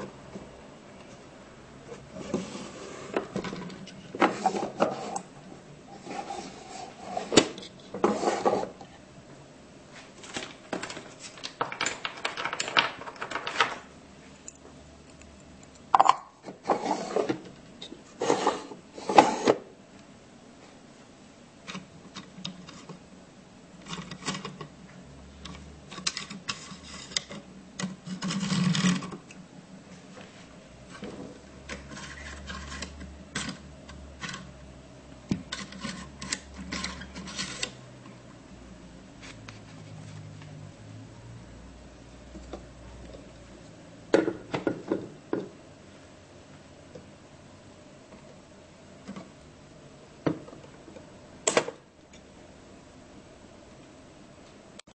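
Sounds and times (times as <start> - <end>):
wooden drawers scraping: 1.9 - 5.3, 6.0 - 8.8, 16.5 - 17.4, 18.2 - 19.6.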